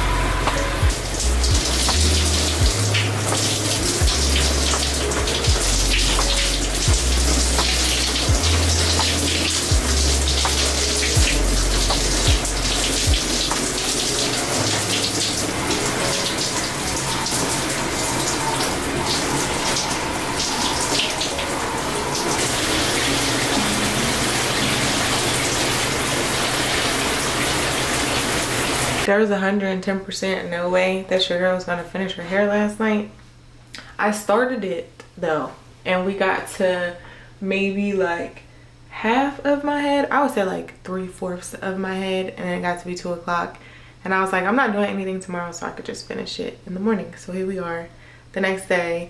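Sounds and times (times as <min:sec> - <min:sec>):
music with deep bass line: 0:00.0 - 0:17.4
shower water spraying on tile: 0:00.4 - 0:29.1.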